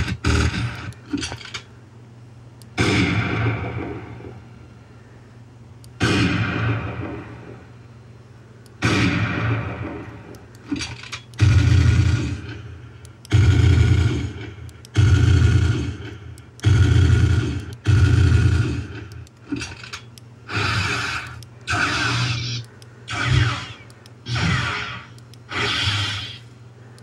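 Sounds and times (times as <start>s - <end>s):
blaster shot sound effects: 8.8s - 10.1s.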